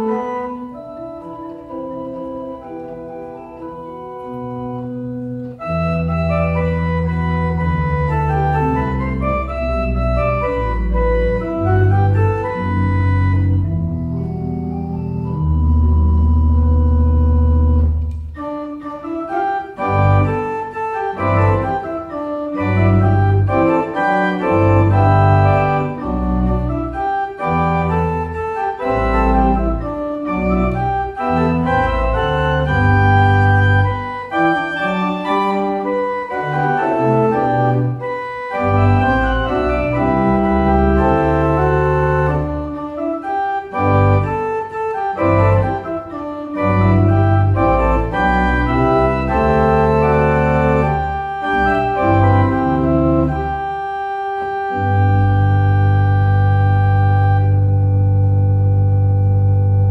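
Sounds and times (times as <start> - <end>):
pipe organ playing: 0.0 - 59.9
deep pedal bass line: 4.0 - 18.4, 19.8 - 42.8, 43.7 - 53.8, 54.6 - 59.9.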